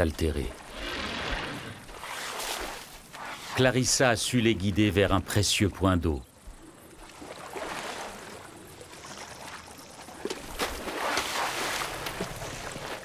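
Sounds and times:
elephants splashing in water: 7.0 - 13.0.

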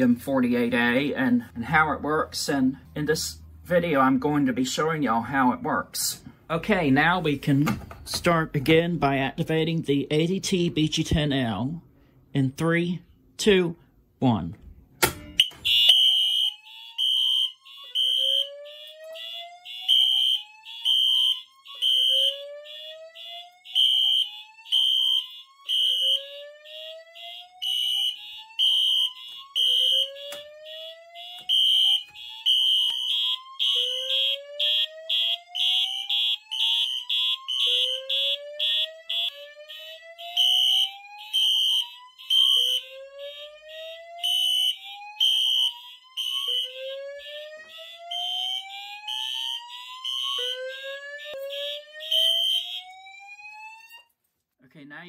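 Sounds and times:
fire alarm horn pulsing: 15.3 - 54.1
fast pulsing alarm horn: 15.4 - 53.1.

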